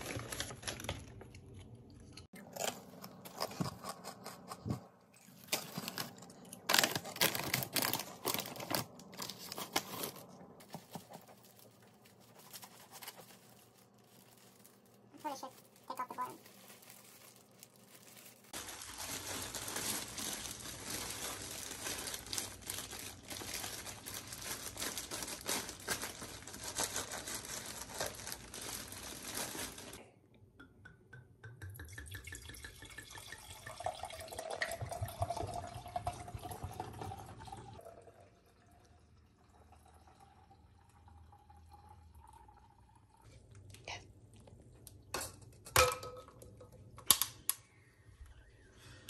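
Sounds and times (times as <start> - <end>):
crinkling plastic: 0.0 - 1.7, 2.4 - 30.0
wine pouring into glasses: 31.8 - 43.2.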